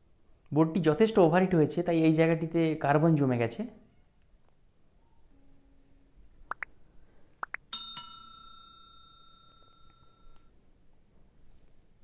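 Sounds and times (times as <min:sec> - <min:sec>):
bell dinging: 0:07.7 - 0:10.5.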